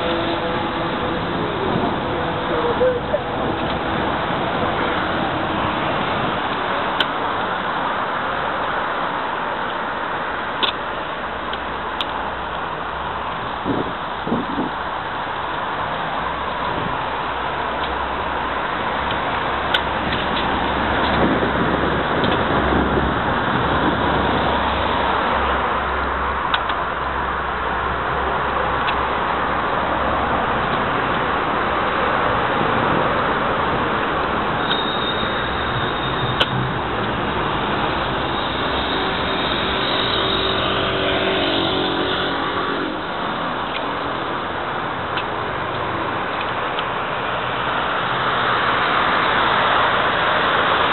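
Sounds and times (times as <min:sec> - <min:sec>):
wind on microphone: 0:00.0 - 0:06.9, 0:13.3 - 0:14.9, 0:19.4 - 0:25.6
bicycle tyre rolling on paving: 0:00.0 - 0:50.9
steady rushing noise: 0:00.0 - 0:50.9
car passing by: 0:27.8 - 0:50.9.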